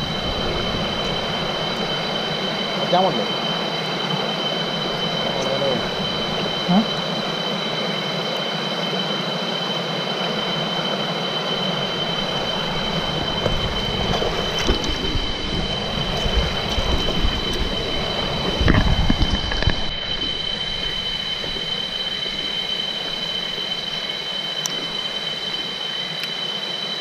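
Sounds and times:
low rumbles: 0.0 - 2.9, 11.6 - 25.6
stream rushing over stones: 0.0 - 7.5, 11.5 - 26.4
insects droning: 0.0 - 27.0.

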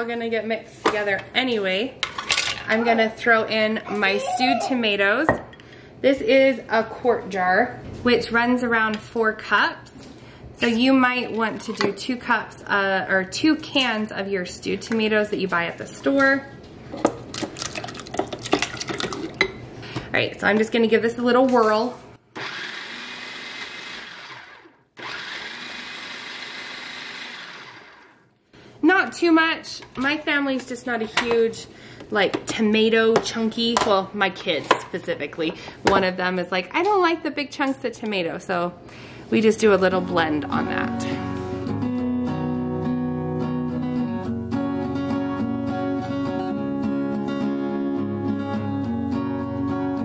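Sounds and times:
food processor chopping: 22.4 - 28.1
acoustic guitar strumming: 40.5 - 50.0.

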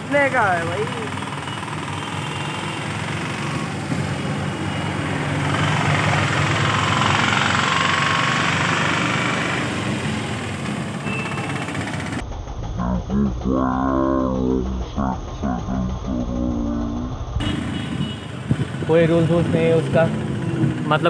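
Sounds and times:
passing traffic: 0.0 - 21.0
truck passing: 0.0 - 21.0.

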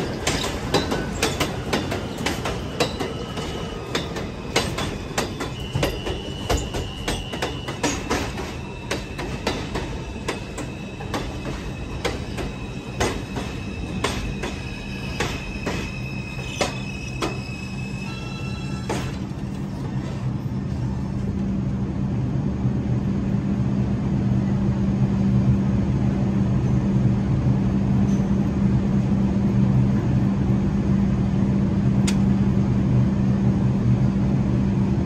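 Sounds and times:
train wheels clacking over rail joints: 0.0 - 17.5
high wheel squeal: 0.1 - 20.6.

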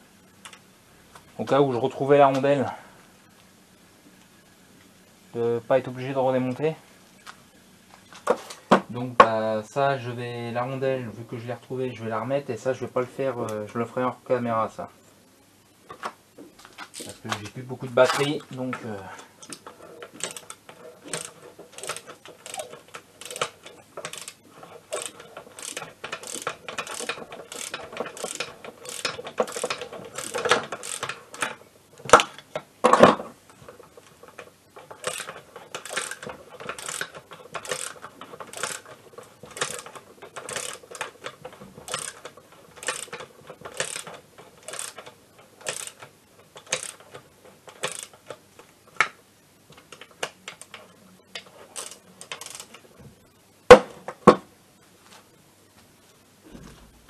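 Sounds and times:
ratchet wrench clicking: 19.4 - 31.6, 35.0 - 38.9, 39.5 - 41.1, 41.9 - 47.1, 47.7 - 48.1, 51.8 - 52.8.

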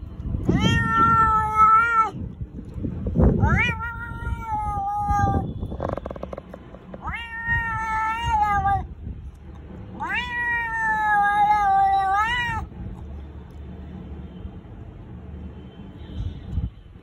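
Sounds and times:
cat yowling: 0.4 - 2.2, 3.4 - 6.3, 6.9 - 8.9, 10.0 - 12.7.

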